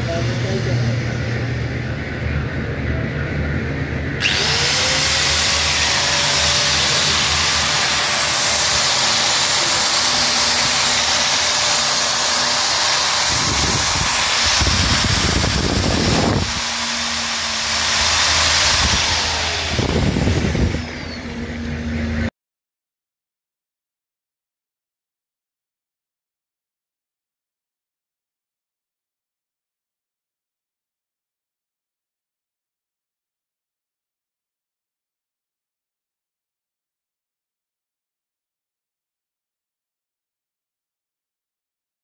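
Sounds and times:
angle grinder spinning: 4.2 - 21.6.

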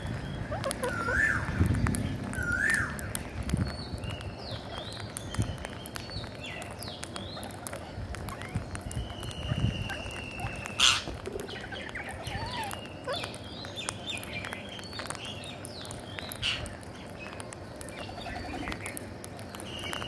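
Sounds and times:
parakeets chirping: 0.0 - 3.2, 3.8 - 19.0
beaks pecking at grain: 0.0 - 20.0
parakeet squawk: 0.5 - 1.5, 9.4 - 11.1.

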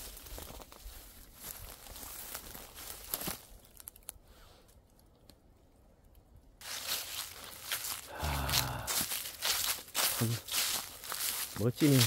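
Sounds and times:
crunching footsteps: 0.0 - 4.2, 6.6 - 12.0.

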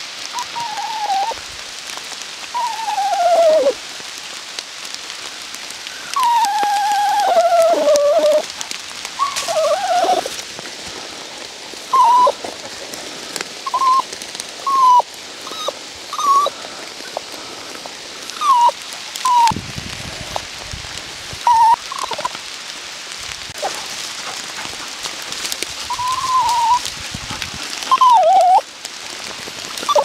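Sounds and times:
dog whining: 0.4 - 1.4, 2.6 - 3.8, 6.1 - 8.5, 9.2 - 10.3, 11.9 - 12.4, 13.7 - 14.0, 14.7 - 16.5, 18.4 - 19.5, 21.4 - 22.3, 25.9 - 26.8, 27.9 - 28.6, 29.8 - 30.0.

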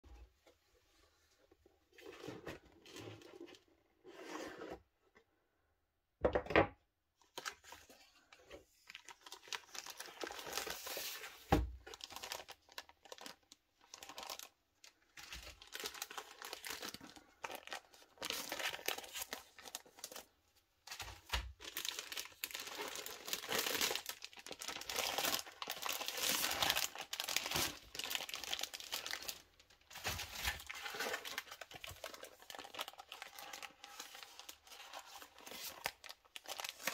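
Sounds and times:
cellophane bags crinkling: 8.8 - 36.9.

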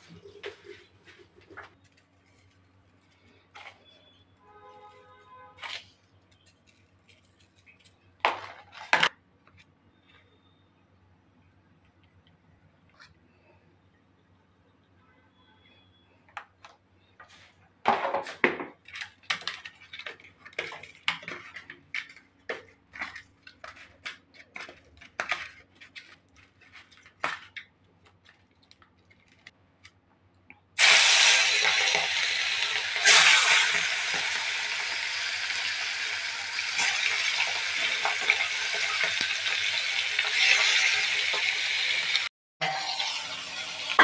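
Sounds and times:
fish sizzling in hot oil: 30.8 - 44.0.

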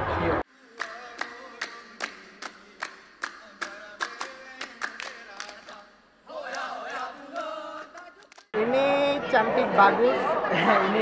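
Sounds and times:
sharp hand claps: 0.8 - 5.8, 7.4 - 8.5
performers chanting in unison: 5.7 - 8.3.

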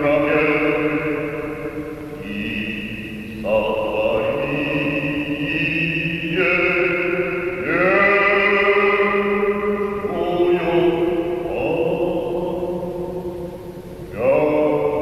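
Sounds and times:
choir chanting: 0.0 - 9.3.

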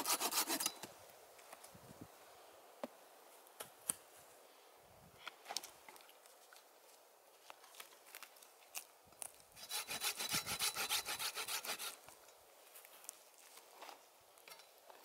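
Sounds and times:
hand saw cutting through log: 0.0 - 0.8, 9.6 - 12.0.

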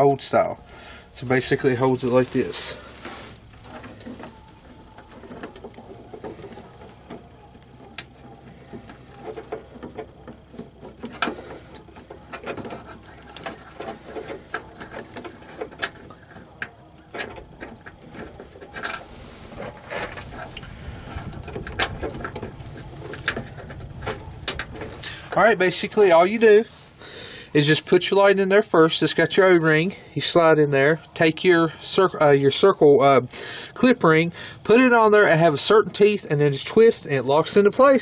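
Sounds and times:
plastic parts clicking and rattling: 3.5 - 25.1.

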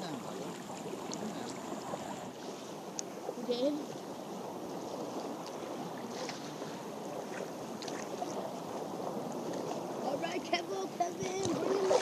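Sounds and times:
seawater sloshing and lapping: 0.0 - 12.0
small water splashes: 0.0 - 12.0
wind on microphone: 11.0 - 12.0.

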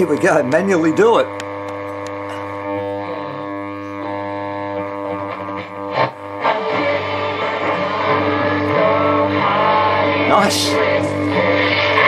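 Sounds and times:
radio crackle: 0.0 - 8.1
low hum: 0.0 - 12.0
radio playing music: 0.0 - 12.0.

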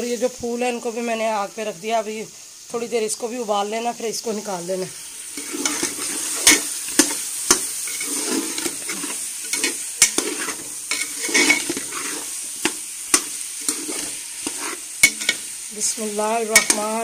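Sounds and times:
food sizzling: 0.0 - 17.0
metal spatula scraping pot: 5.3 - 17.0
metal clacking against pot: 12.6 - 15.4, 16.6 - 16.9.

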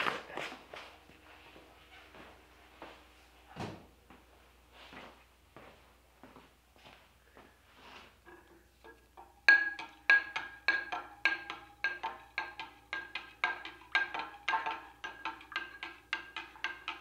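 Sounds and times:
spoon clinking in glass: 9.2 - 17.0.

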